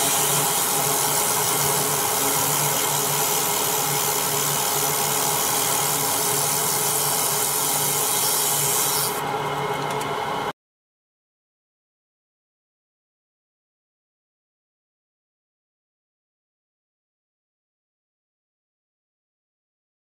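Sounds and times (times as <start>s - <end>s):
laser hissing crackle on metal: 0.0s - 9.2s
machine hum: 0.0s - 10.5s.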